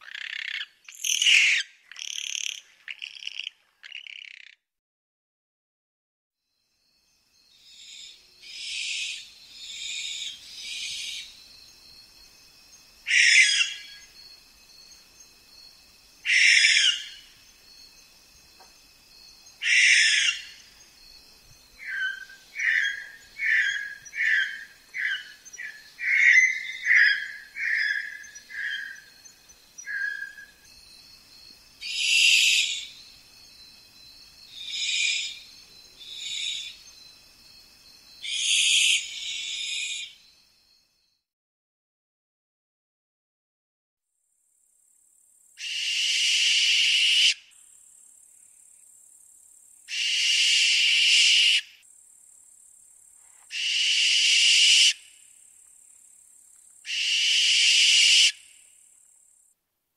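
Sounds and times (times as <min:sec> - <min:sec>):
owl screeching: 0:00.0 - 0:03.2, 0:07.8 - 0:11.3, 0:13.1 - 0:14.0, 0:16.2 - 0:17.2, 0:19.6 - 0:20.6, 0:21.8 - 0:29.0, 0:34.6 - 0:35.4, 0:38.2 - 0:40.1, 0:45.6 - 0:47.4, 0:49.9 - 0:51.7, 0:53.5 - 0:55.0, 0:56.9 - 0:58.4
insect trill: 0:00.0 - 0:04.5, 0:06.4 - 0:41.3, 0:44.2 - 0:59.6.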